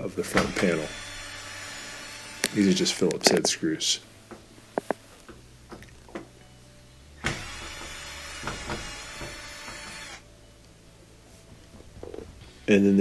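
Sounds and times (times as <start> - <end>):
cordless drill spinning out screw: 0.5 - 2.8, 7.3 - 10.2.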